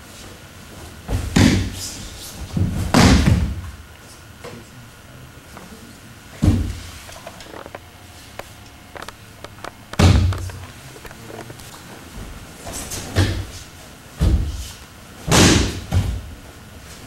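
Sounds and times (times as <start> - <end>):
bodies thudding on a padded mat: 1.0 - 1.8, 2.4 - 3.8, 12.1 - 13.6, 14.2 - 16.4.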